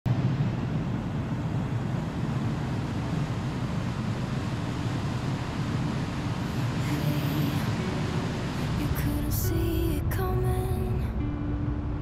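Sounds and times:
churning wake rushing: 1.8 - 11.1.

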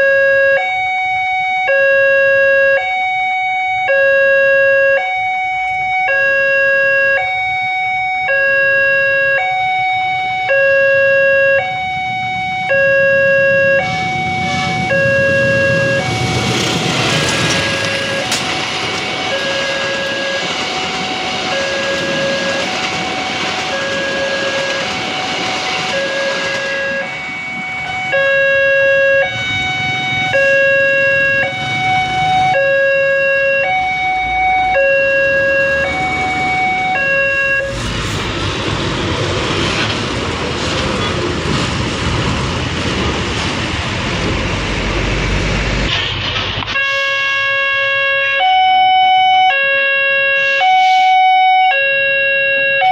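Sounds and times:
train rumbling past: 11.6 - 46.7.

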